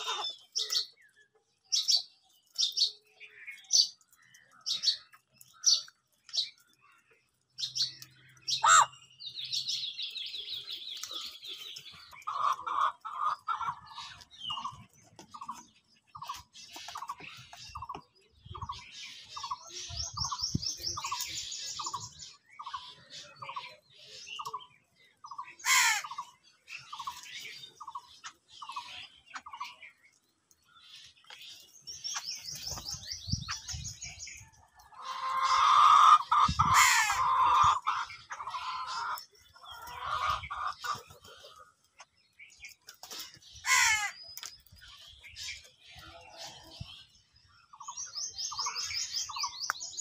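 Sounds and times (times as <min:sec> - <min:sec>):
small birds chirping: 0:00.0 - 0:50.0
crows cawing: 0:08.5 - 0:09.0, 0:25.6 - 0:26.3, 0:35.0 - 0:39.2, 0:43.6 - 0:44.2.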